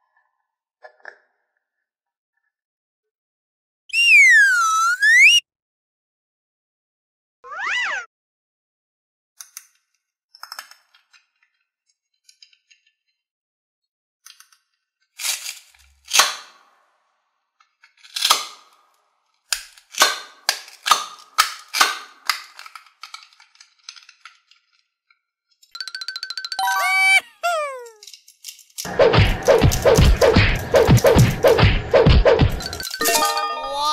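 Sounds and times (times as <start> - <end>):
plastic halves snapping apart: 16.1 - 16.6, 18.1 - 18.8, 19.5 - 24.4.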